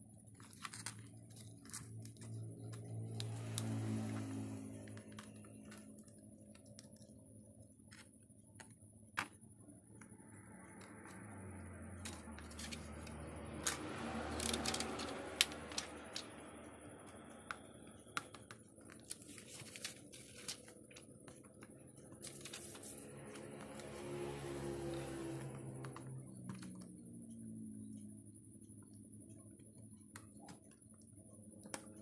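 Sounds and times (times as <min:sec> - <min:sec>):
plastic film rustling: 0:19.0 - 0:21.1, 0:22.2 - 0:23.1.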